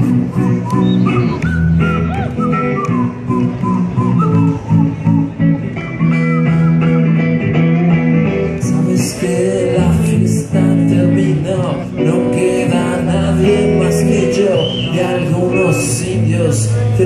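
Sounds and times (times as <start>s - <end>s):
electric guitar blues-rock song: 0.0s - 17.0s
person singing: 8.5s - 17.0s.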